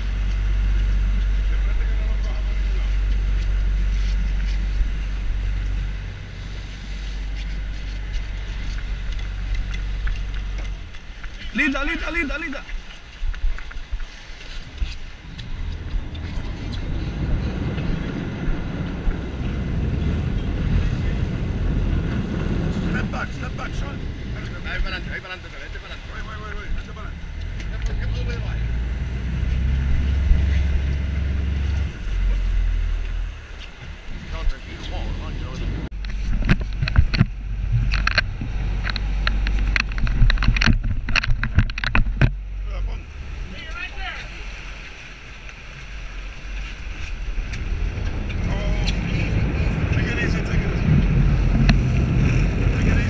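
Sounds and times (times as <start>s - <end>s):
boat engine rumble: 0.0s - 53.0s
water rushing: 0.0s - 53.0s
wind buffeting microphone: 0.0s - 53.0s
sharp knocks and clicks: 36.0s - 42.4s.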